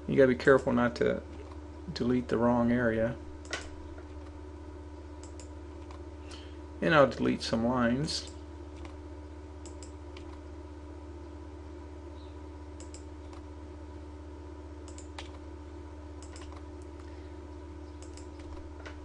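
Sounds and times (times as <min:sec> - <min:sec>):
low electrical hum: 0:00.0 - 0:19.0
computer mouse clicks: 0:05.2 - 0:06.0, 0:09.6 - 0:10.4, 0:12.8 - 0:13.4, 0:14.9 - 0:15.4, 0:16.2 - 0:17.1, 0:18.0 - 0:18.6.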